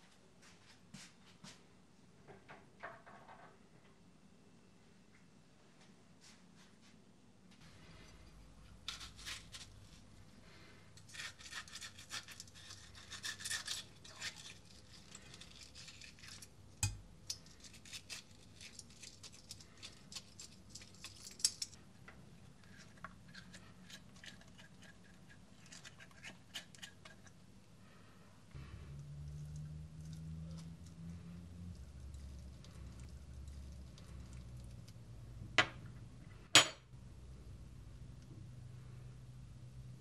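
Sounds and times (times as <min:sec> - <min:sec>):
spoon scraping tomato: 0:11.0 - 0:21.6, 0:22.6 - 0:27.4.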